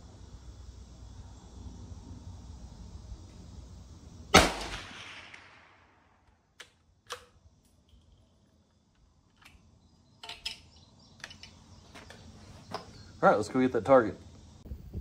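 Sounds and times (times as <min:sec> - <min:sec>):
rifle shot tail: 0:04.3 - 0:06.0.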